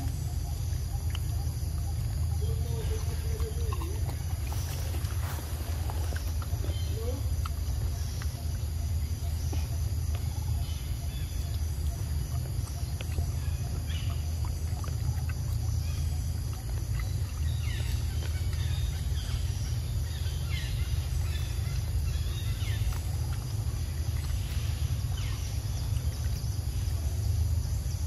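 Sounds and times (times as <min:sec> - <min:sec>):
monkey chewing clicks: 0:00.0 - 0:19.4, 0:21.2 - 0:27.3
steady low rumble: 0:00.0 - 0:28.0.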